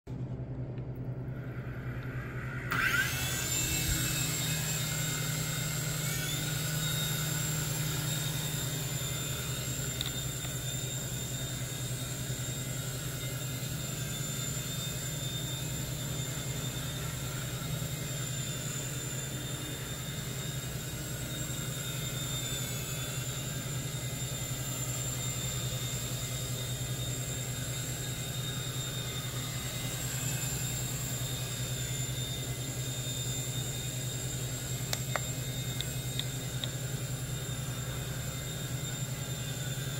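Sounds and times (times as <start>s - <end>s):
rotor buzz: 1.1s - 39.9s
toy helicopter motors whining: 1.4s - 39.9s.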